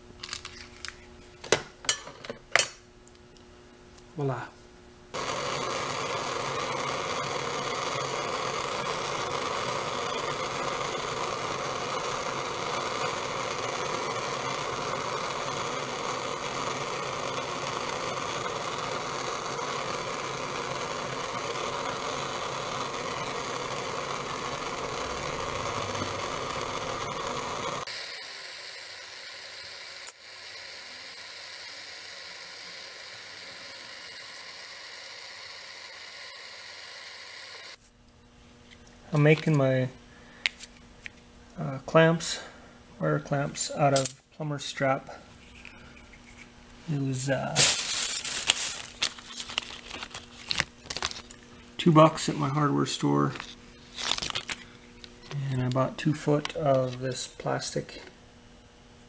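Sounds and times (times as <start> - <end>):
propane torch hissing: 5.1 - 37.8, 41.6 - 42.6, 46.9 - 58.0.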